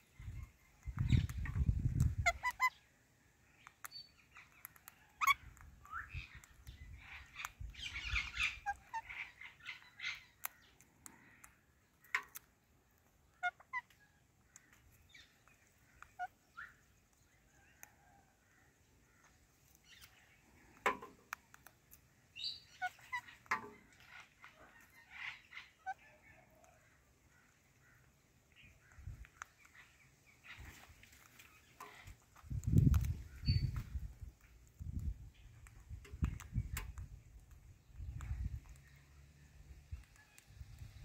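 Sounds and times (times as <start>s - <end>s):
parakeets chirping and squawking: 0.1s - 2.9s, 4.2s - 11.6s, 13.3s - 14.0s, 22.4s - 26.4s, 28.6s - 34.1s
sharp clicks: 10.3s - 13.2s, 20.7s - 22.1s, 32.3s - 39.0s.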